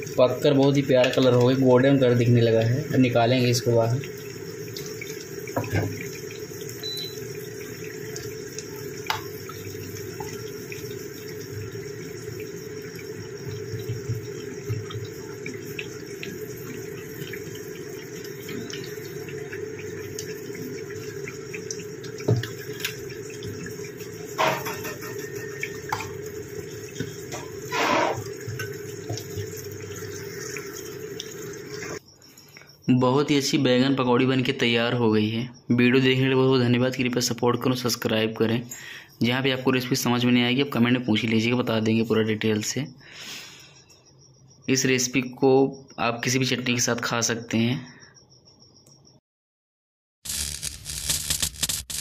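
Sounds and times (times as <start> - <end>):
battered vegetables sizzling in oil: 0.0 - 32.0, 50.3 - 52.0
metal spoon scraping a pan: 27.7 - 28.2.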